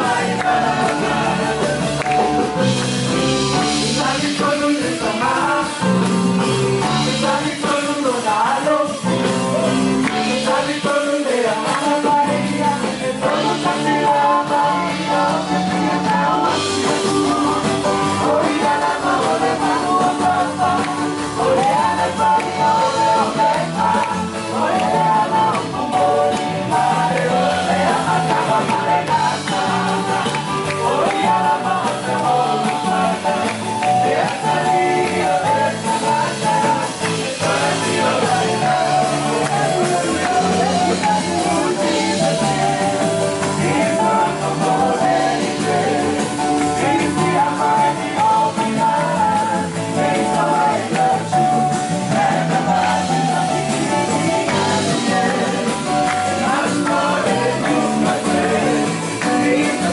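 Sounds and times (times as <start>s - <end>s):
church band drums and guitar: 0.0s - 59.9s
congregation singing: 0.0s - 59.9s.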